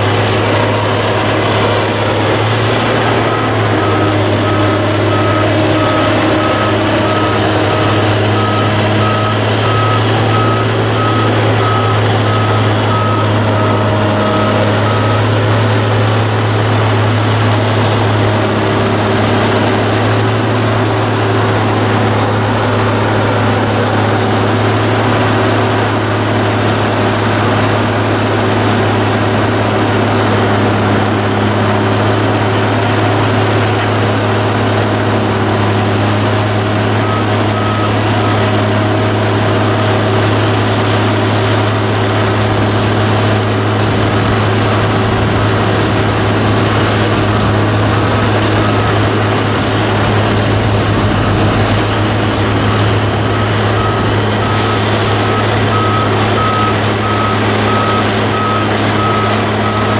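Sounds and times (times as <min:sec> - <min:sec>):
heavy diesel engine running: 0:00.0 - 0:59.9
backup alarm beeping: 0:00.5 - 0:15.9, 0:43.0 - 0:59.9.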